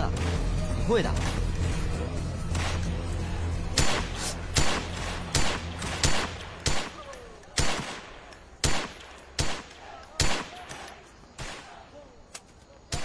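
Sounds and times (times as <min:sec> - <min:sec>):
rifle shots: 0:03.7 - 0:11.9.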